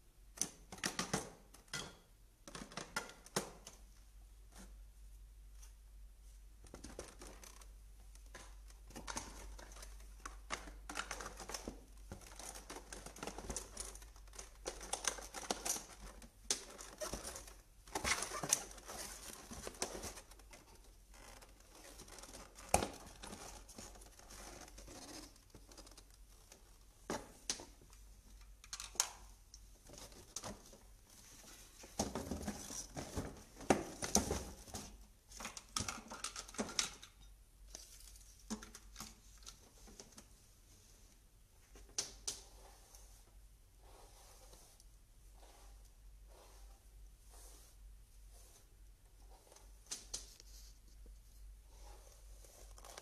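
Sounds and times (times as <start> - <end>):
plastic attachments rustling and clicking: 6.6 - 40.4, 52.2 - 53.0.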